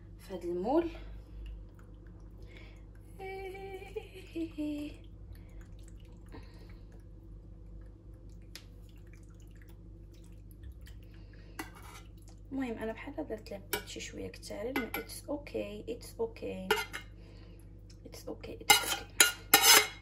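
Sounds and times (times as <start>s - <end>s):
steady low hum: 0.0s - 20.0s
woman humming: 3.1s - 5.1s.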